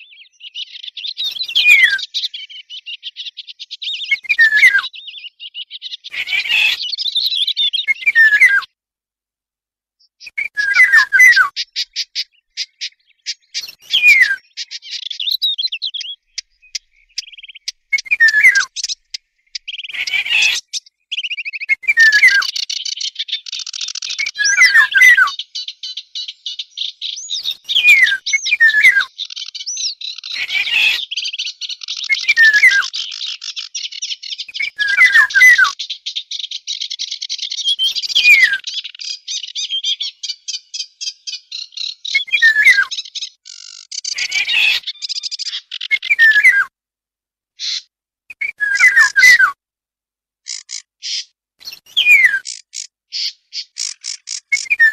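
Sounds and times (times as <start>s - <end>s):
whistled bird song sliding downward: 0.0s - 8.7s, 10.0s - 46.7s, 47.6s - 49.6s, 50.5s - 54.9s
fast high bird chattering: 10.7s - 46.1s, 50.5s - 54.9s.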